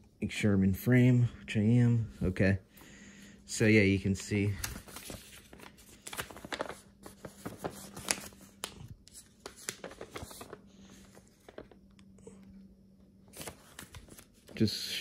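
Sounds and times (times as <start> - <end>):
faint steady hum: 0.0 - 15.0
paper pages rustling: 4.1 - 12.1, 13.3 - 14.7.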